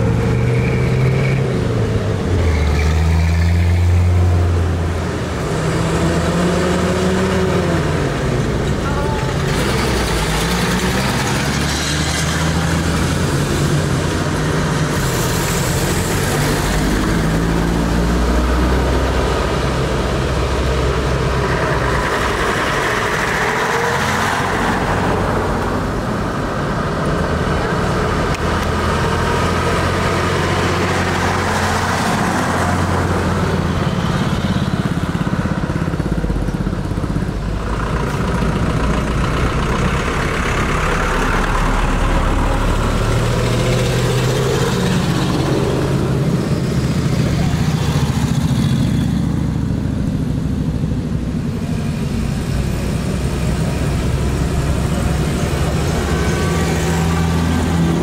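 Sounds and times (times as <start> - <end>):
military vehicle engines passing by: 0.0 - 58.0.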